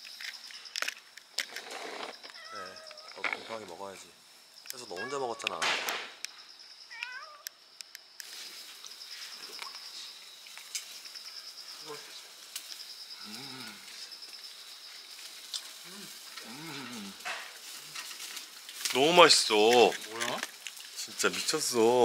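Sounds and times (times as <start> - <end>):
insects chirping: 0.0 - 22.0
cat meowing: 2.3 - 3.2, 5.0 - 5.6, 6.9 - 7.5
man humming: 13.2 - 13.9, 15.9 - 17.2.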